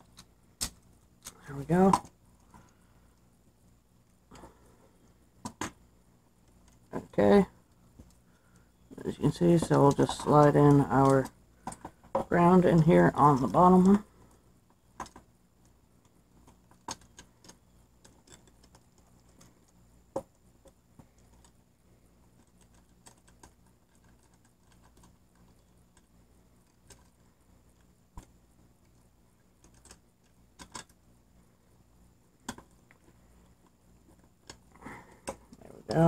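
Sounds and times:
small clicks of metal parts: 9.6s - 12.4s, 14.6s - 21.6s, 22.4s - 29.0s, 29.6s - 31.0s.

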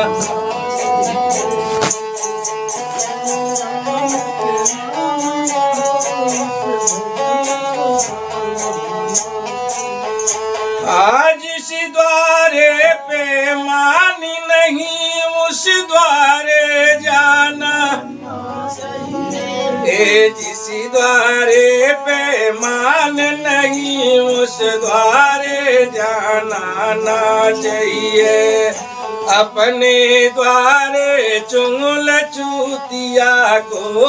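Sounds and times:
bowed fiddle melody: 0.0s - 11.1s, 15.4s - 31.4s
man singing: 0.0s - 34.0s.

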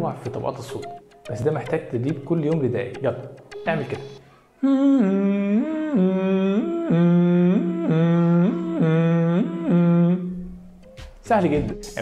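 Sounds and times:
man humming between two notes: 3.9s - 10.7s.

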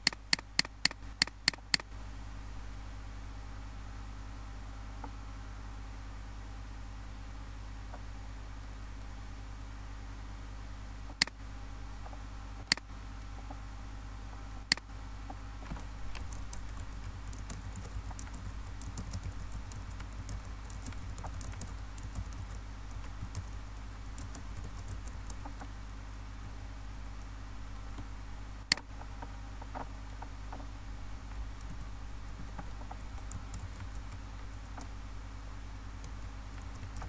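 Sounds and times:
computer keyboard typing: 0.0s - 1.9s, 16.1s - 25.7s, 31.5s - 35.0s, 36.0s - 37.0s
mouse clicks: 0.0s - 1.9s, 12.0s - 13.6s, 14.7s - 14.9s, 28.7s - 30.7s
steady low hum: 0.0s - 37.0s.

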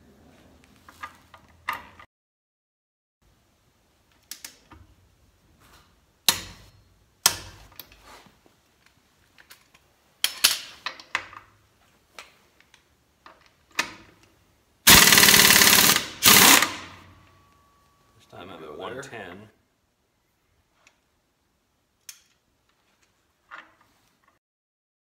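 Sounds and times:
air impact wrench hammering: 14.9s - 17.1s.

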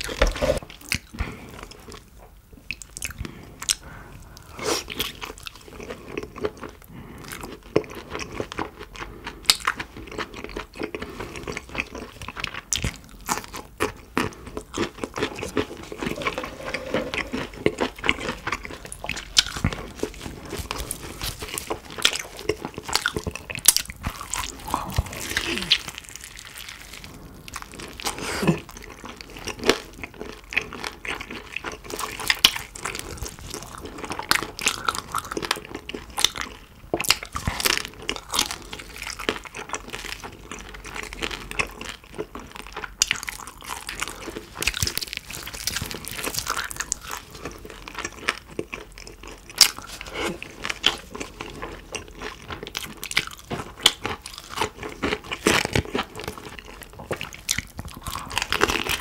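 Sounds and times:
wet chewing: 2.7s - 59.0s
crunching crispy skin: 17.8s - 30.5s, 31.2s - 59.0s.

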